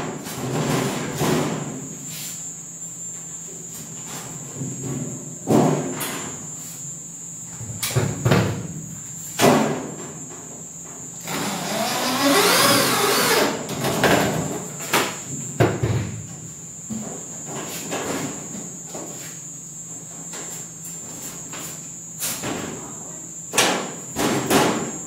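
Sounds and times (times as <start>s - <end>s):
electric drill running: 11.2s - 13.6s.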